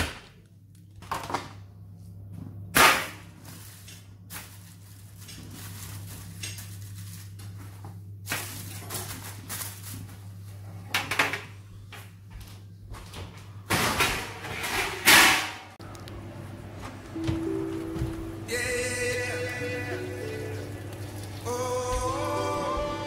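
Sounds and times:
plastic packaging crinkling: 3.4s - 10.3s.

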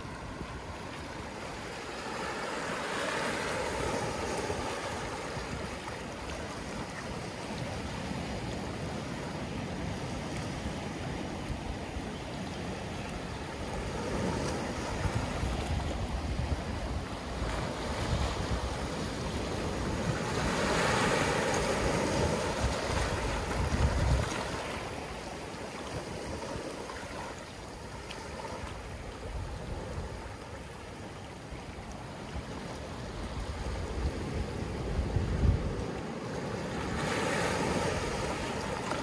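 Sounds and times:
ocean waves washing on beach: 0.0s - 39.0s
wind buffeting microphone: 13.4s - 25.3s, 32.8s - 38.9s.

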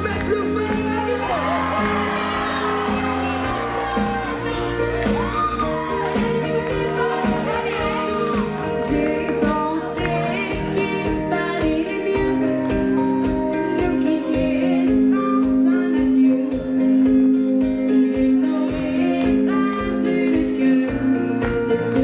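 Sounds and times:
drums: 0.0s - 22.0s
electric guitars: 0.0s - 22.0s
voices singing together: 1.3s - 12.8s, 13.8s - 16.4s, 18.2s - 21.2s.

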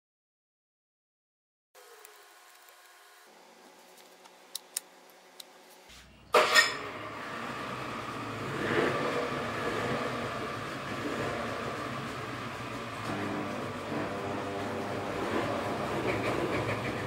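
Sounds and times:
noisy workshop background: 1.8s - 17.0s.

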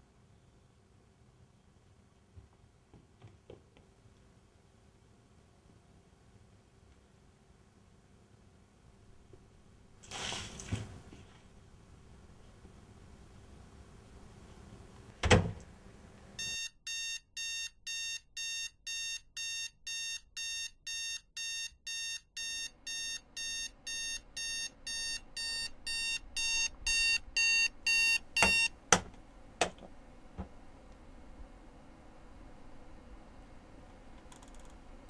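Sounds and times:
digital alarm clock beeping: 16.4s - 28.7s
knocks on alarm clock: 28.4s - 29.8s.

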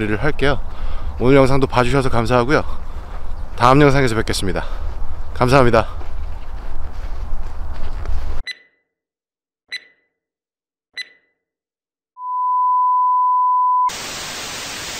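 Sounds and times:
short electronic beeps: 8.4s - 8.8s, 9.7s - 10.1s, 11.0s - 11.4s
high-pitched test tone: 12.2s - 13.9s.

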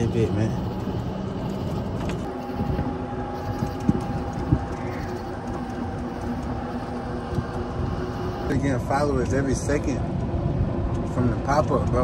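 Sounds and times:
golf cart running hum: 0.0s - 12.0s.

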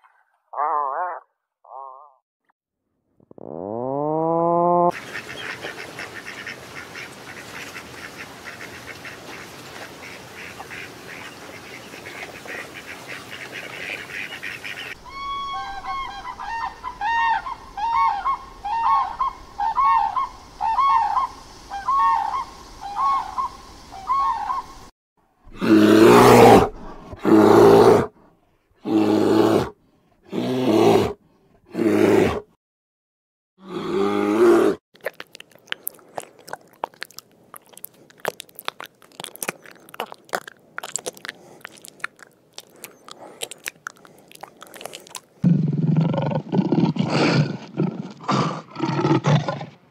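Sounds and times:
cranes calling: 12.5s - 24.7s
ducks whistling: 13.6s - 24.6s.

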